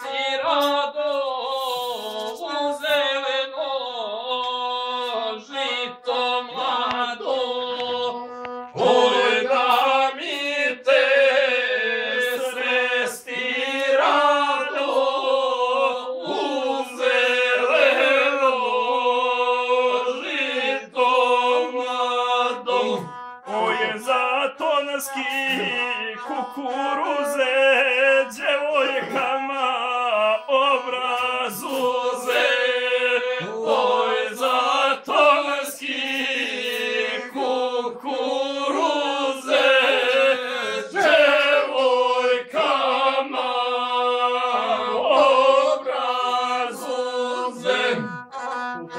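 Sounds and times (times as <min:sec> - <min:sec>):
man singing: 0:00.0 - 0:16.0, 0:16.9 - 0:37.8
bowed fiddle droning: 0:06.6 - 0:10.5, 0:19.9 - 0:29.2, 0:47.3 - 0:48.9.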